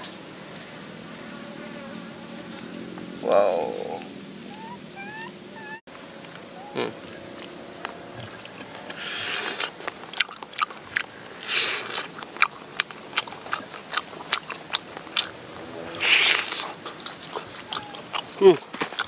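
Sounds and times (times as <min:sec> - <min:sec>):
person slurping: 0:08.2 - 0:10.7, 0:11.4 - 0:12.5, 0:13.2 - 0:19.0
wet chewing smacks: 0:08.2 - 0:15.4, 0:16.0 - 0:19.0.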